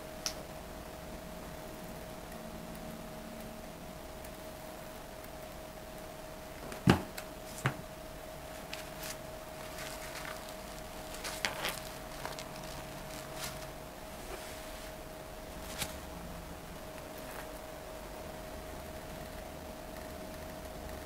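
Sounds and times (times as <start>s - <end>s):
faint steady hum: 0.0s - 21.0s
soft rustles and light taps: 8.5s - 15.0s, 15.6s - 16.1s.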